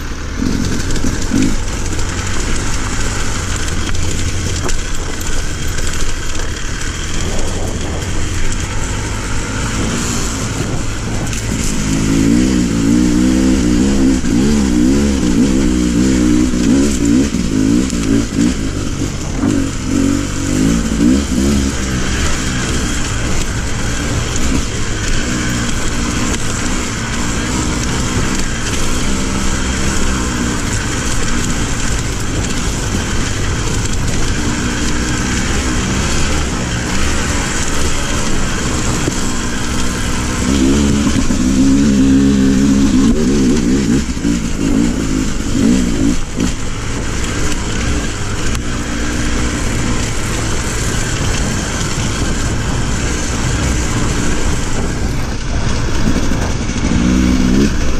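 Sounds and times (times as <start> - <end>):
motorcycle engine revving: 0.0 - 57.9
wind noise on microphone: 6.9 - 27.1, 49.6 - 57.9.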